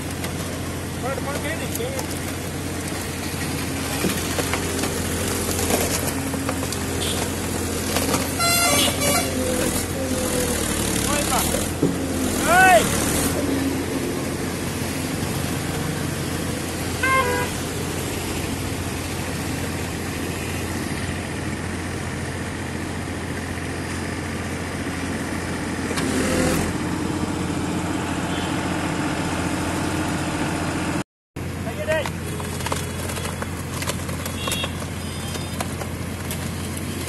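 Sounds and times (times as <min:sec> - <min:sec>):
tractor diesel engine running: 0:00.0 - 0:37.0
vehicle horn toot: 0:06.9 - 0:07.4, 0:08.2 - 0:09.9, 0:17.0 - 0:17.6, 0:28.3 - 0:28.7, 0:34.3 - 0:35.6.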